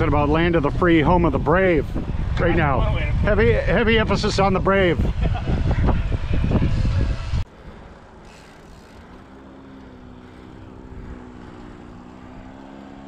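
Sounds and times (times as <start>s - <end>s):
paramotor engine droning: 3.8s - 13.0s.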